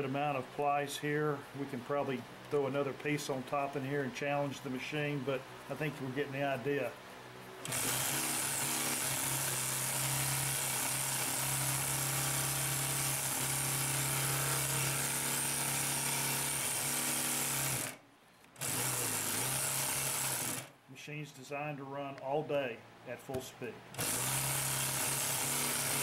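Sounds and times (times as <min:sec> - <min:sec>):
industrial sewing machine stitching: 0:07.6 - 0:18.0, 0:18.6 - 0:20.7, 0:24.0 - 0:26.0.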